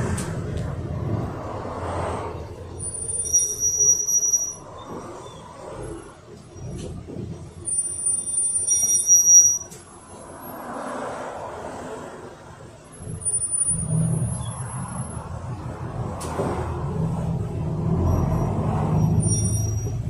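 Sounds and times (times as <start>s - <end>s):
bus engine running: 0.0s - 20.0s
bus brakes squealing: 2.7s - 7.0s, 7.6s - 10.4s, 12.9s - 15.3s, 17.8s - 20.0s.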